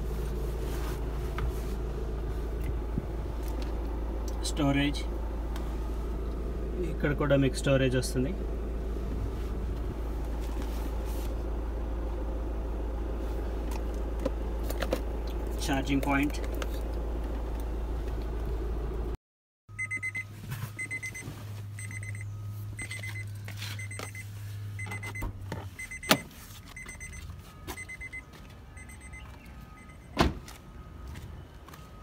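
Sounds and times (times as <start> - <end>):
low hum: 0.0 - 30.0
car warning chime beeping: 19.7 - 32.0
loud thump: 30.2 - 30.4.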